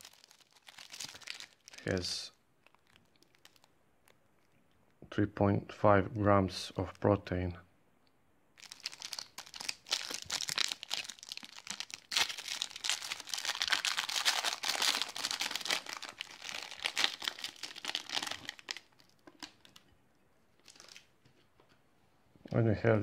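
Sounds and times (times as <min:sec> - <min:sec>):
foil wrapper crinkling: 0:00.0 - 0:02.0, 0:02.6 - 0:03.7, 0:08.6 - 0:19.9, 0:20.6 - 0:21.1.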